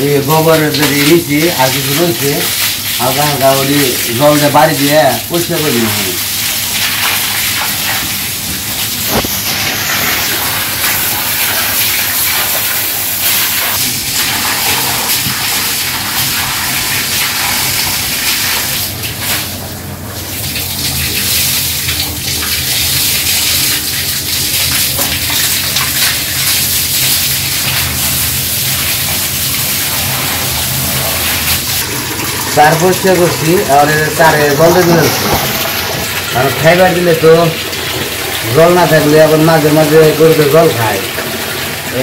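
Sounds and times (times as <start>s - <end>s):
water gushing and splashing: 0.2s - 42.0s.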